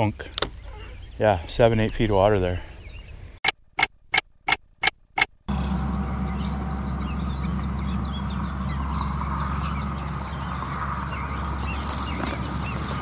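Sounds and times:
bird chirps: 0.6s - 2.0s, 5.5s - 13.0s
insect trill: 10.6s - 13.0s.

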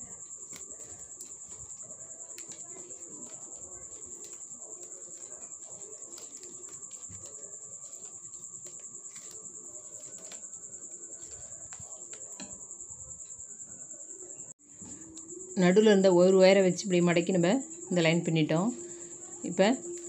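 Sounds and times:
plastic wire clicking and rustling: 0.0s - 12.6s
cricket trilling: 0.0s - 20.0s.

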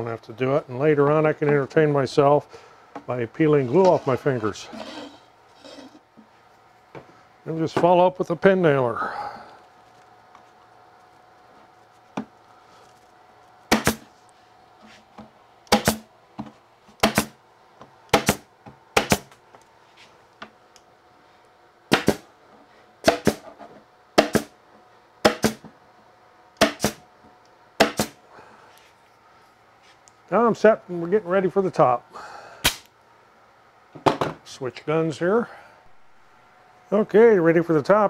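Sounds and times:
pin nailer shots into wood: 13.7s - 14.1s, 15.7s - 16.0s, 17.0s - 17.4s, 18.1s - 19.4s, 21.9s - 22.2s, 23.0s - 23.4s, 24.2s - 24.6s, 25.2s - 25.6s, 26.6s - 27.0s, 27.8s - 28.2s.

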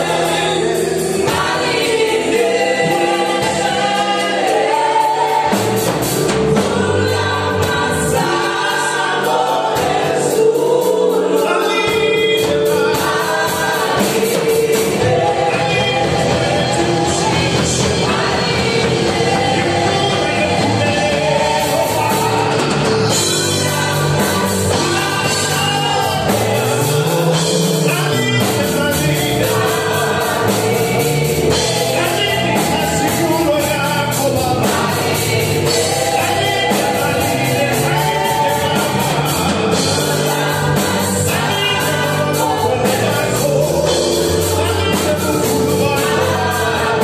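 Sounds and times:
drum kit beat: 0.0s - 47.0s
singers singing together: 0.0s - 47.0s
electric bass: 11.9s - 47.0s.

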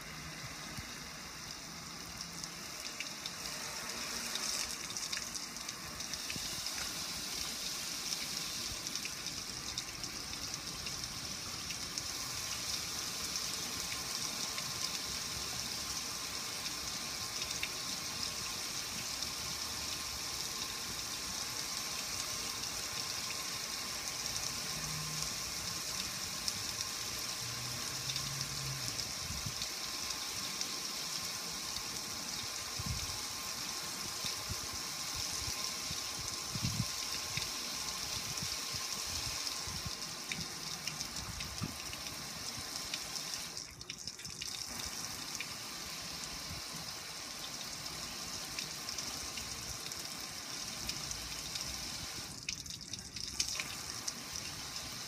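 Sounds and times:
water splashing on metal grill: 35.4s - 55.0s.

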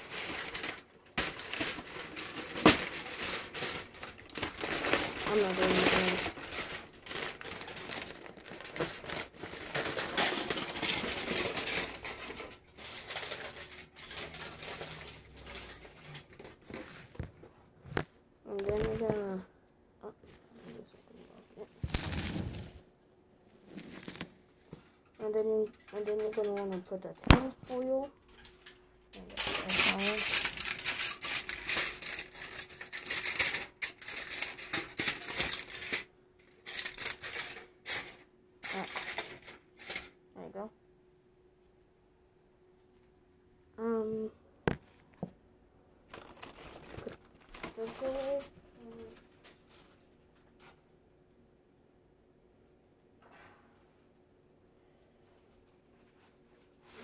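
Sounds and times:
aluminium foil crinkling: 0.0s - 17.3s, 18.5s - 19.5s, 20.5s - 22.8s, 23.7s - 40.5s, 46.0s - 50.8s, 55.6s - 57.0s.

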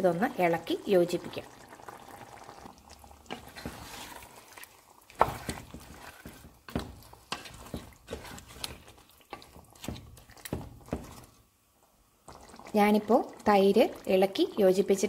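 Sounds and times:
spatula scraping a pan: 3.2s - 11.4s.

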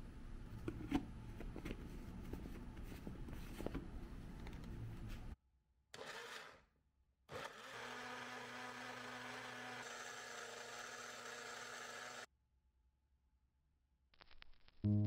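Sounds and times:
countertop blender running: 7.3s - 12.3s.

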